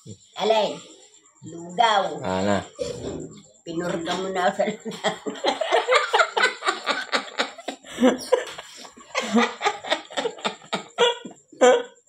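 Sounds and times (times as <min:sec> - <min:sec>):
woman laughing: 0:03.9 - 0:11.9.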